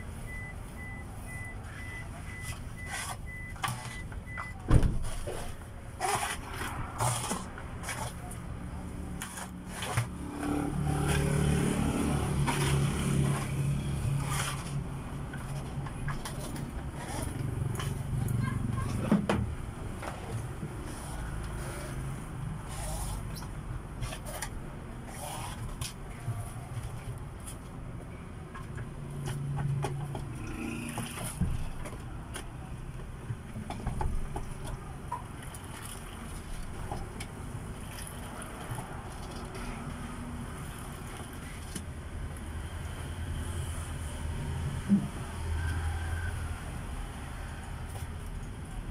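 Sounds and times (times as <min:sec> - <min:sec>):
passing vehicle engine: 0:10.0 - 0:14.9.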